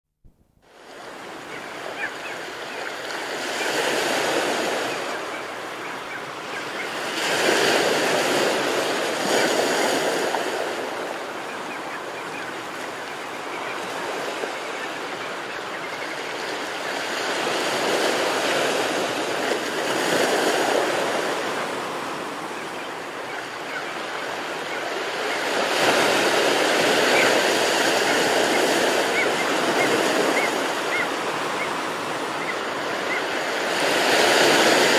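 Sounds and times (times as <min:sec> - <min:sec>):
ocean waves breaking: 0:00.6 - 0:34.9.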